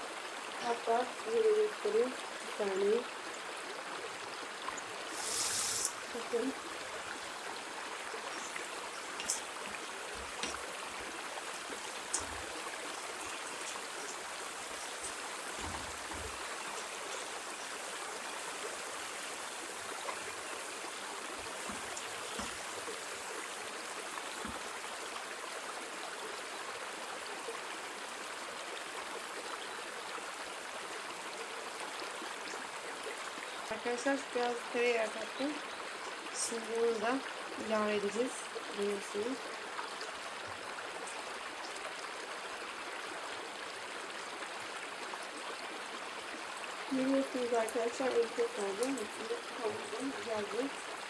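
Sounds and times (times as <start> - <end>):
vegetables sizzling in a frying pan: 5.1 - 6.5
faint ticks: 12.0 - 12.5.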